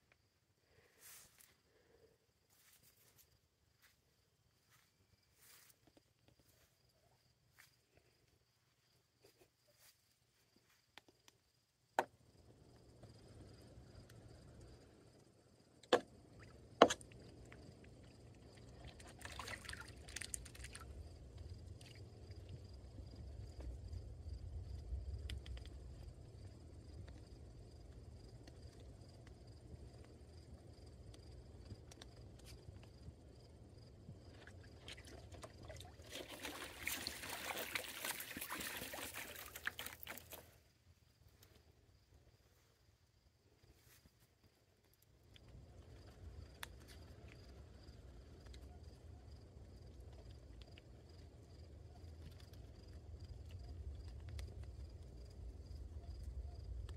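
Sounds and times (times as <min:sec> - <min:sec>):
water dripping: 0:16.4 - 0:22.6, 0:34.8 - 0:40.4
geese splashing water: 0:17.4 - 0:22.5, 0:34.4 - 0:40.4.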